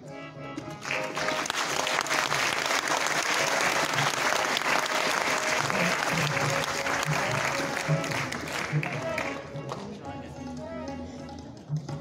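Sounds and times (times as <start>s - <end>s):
music playing: 0.0s - 12.0s
audience applause: 0.8s - 9.4s.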